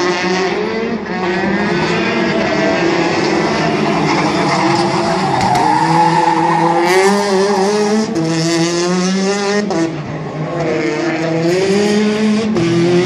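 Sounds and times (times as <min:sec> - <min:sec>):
rally car engine revving: 0:00.0 - 0:13.0
tyres squealing: 0:03.6 - 0:08.2.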